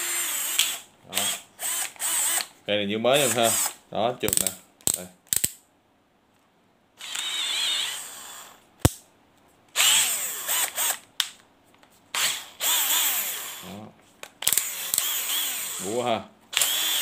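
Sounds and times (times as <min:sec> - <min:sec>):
cordless drill motor whirring: 0:00.0 - 0:02.5, 0:03.2 - 0:03.8, 0:07.0 - 0:08.6, 0:09.8 - 0:11.0, 0:12.2 - 0:13.7, 0:14.4 - 0:17.0
sharp click: 0:04.3 - 0:05.6.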